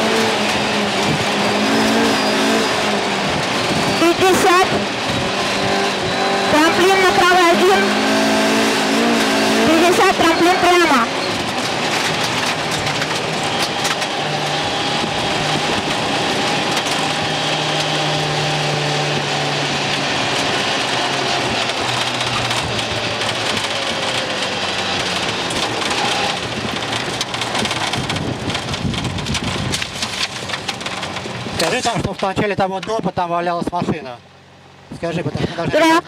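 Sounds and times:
rally car engine: 0:00.0 - 0:36.0
tyres on loose gravel: 0:10.0 - 0:18.6, 0:19.7 - 0:32.6
rattle noise: 0:11.1 - 0:17.2, 0:21.2 - 0:32.3.

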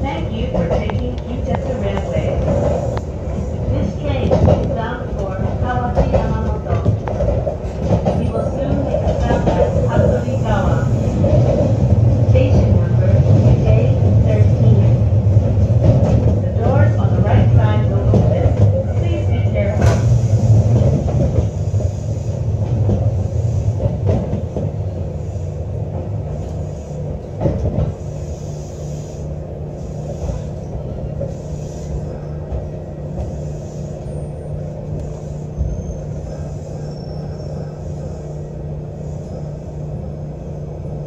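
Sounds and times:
electric train rumble and hum: 0:00.0 - 0:41.0.

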